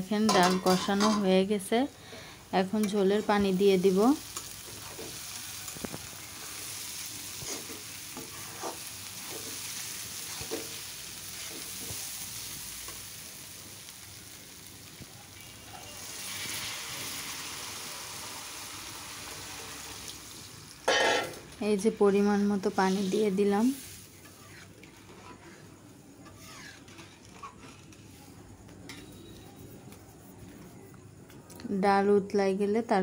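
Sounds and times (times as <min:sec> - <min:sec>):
lentils sizzling in oil: 0:00.0 - 0:30.4
spatula scraping a pan: 0:04.4 - 0:12.0, 0:22.8 - 0:28.2
water poured into hot pan: 0:16.0 - 0:20.6.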